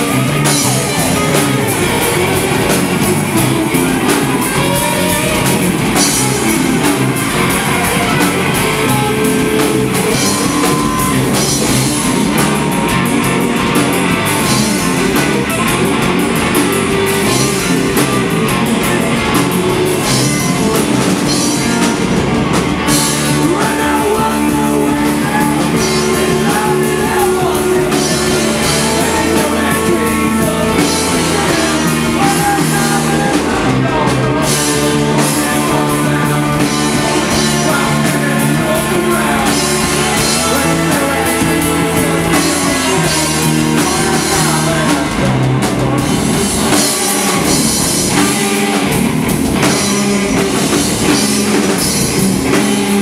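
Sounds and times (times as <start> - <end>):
rock band playing loud: 0.0 - 53.0.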